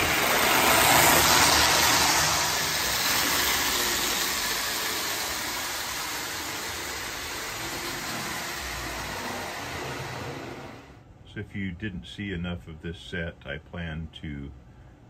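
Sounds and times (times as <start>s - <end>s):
toy train wheels clattering: 0.0s - 10.1s.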